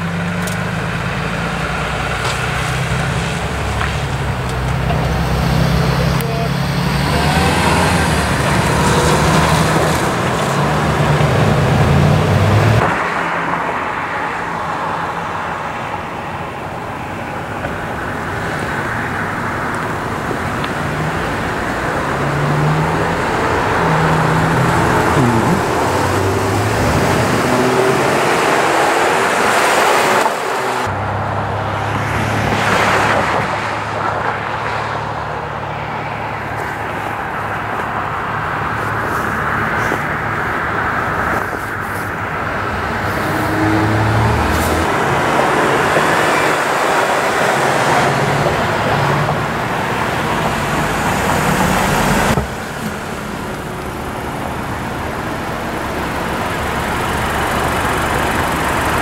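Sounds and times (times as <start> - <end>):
vehicles passing on wet road: 0.0 - 59.0
low engine hum: 15.6 - 29.0.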